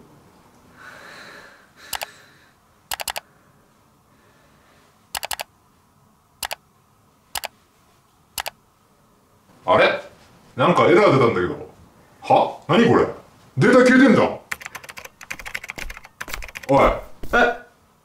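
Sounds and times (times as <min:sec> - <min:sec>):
computer mouse clicks: 0:01.9 - 0:02.1, 0:02.9 - 0:03.2, 0:05.2 - 0:05.5, 0:08.4 - 0:08.6, 0:14.5 - 0:16.7.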